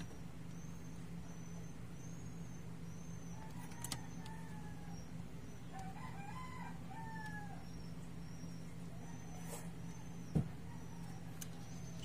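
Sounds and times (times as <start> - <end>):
steady low hum: 0.0 - 12.0
rooster crowing: 3.3 - 5.1, 5.7 - 7.8.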